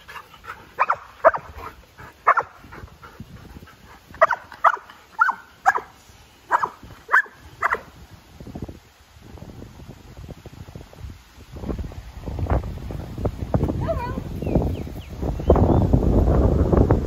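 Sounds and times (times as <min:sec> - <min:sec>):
dog barking: 0:00.8 - 0:01.5, 0:02.2 - 0:02.6, 0:04.2 - 0:05.9, 0:06.5 - 0:07.9.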